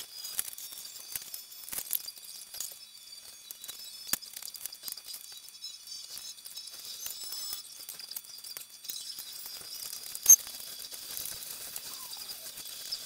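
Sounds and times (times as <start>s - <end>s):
high-pitched squeaky chirps: 11.6s - 13.0s.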